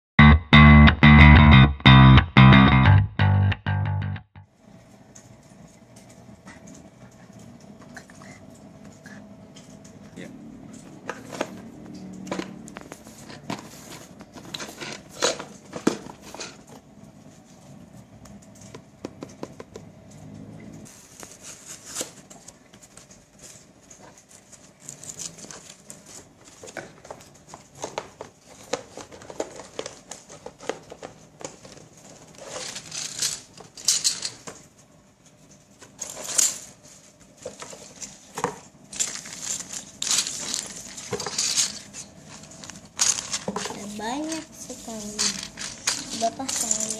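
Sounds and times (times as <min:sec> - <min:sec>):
plastic parts knocking and rattling: 0:10.7 - 0:16.9, 0:18.4 - 0:20.1, 0:21.8 - 0:46.9
cardboard tearing and rustling: 0:20.9 - 0:22.6, 0:38.9 - 0:46.9
plastic bag crinkling: 0:36.1 - 0:46.9.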